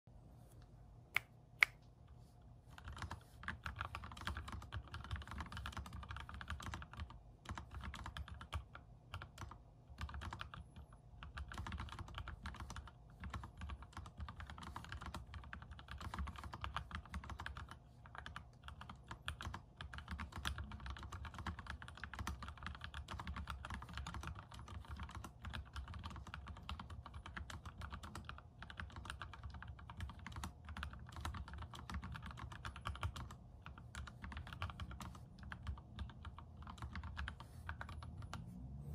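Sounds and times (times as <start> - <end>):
mechanical keyboard typing: 2.8 - 38.4.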